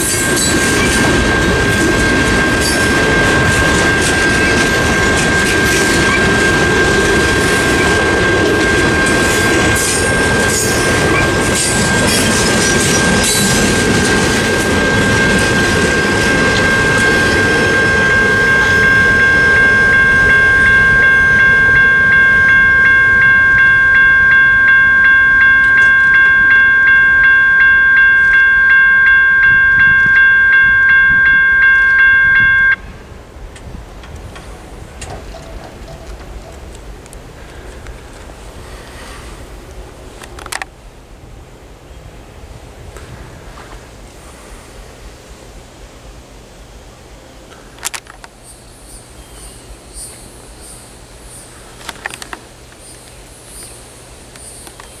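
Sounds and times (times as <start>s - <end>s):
electronic crossing bell ringing: 0.0s - 32.9s
insects chirping: 48.3s - 55.0s.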